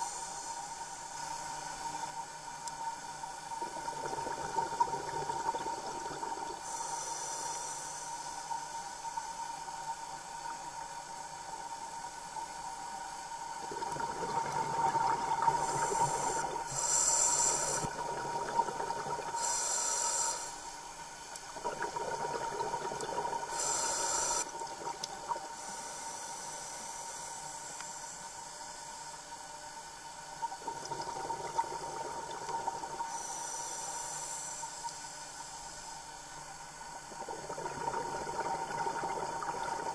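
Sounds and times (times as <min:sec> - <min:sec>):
hissing regulator inhalations: 0:06.6 - 0:08.5, 0:15.4 - 0:18.0, 0:19.4 - 0:20.7, 0:23.5 - 0:24.5, 0:33.1 - 0:35.2.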